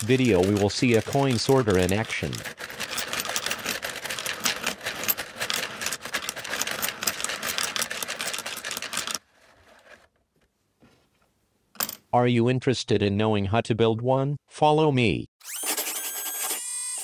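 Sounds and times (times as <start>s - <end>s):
coins rattling through sorter: 0.0s - 9.2s.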